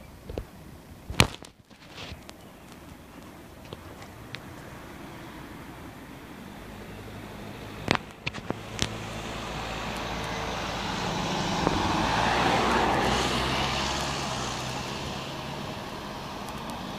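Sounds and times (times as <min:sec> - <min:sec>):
vehicle driving past: 0:04.6 - 0:16.9.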